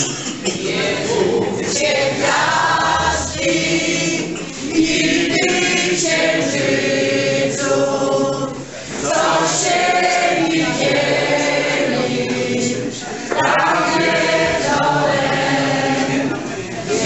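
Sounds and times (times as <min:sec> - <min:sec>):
group singing folk song in chorus: 0:00.0 - 0:17.0.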